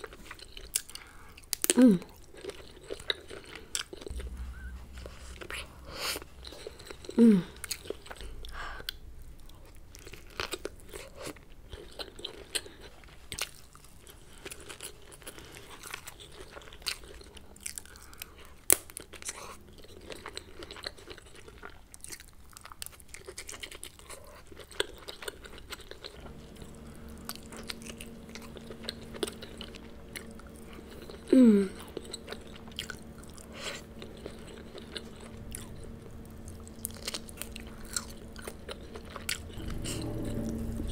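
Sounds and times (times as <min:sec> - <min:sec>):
short hum sliding down in pitch: 0:04.1 - 0:08.6, 0:26.2 - 0:40.9
person chewing wetly: 0:06.4 - 0:40.5.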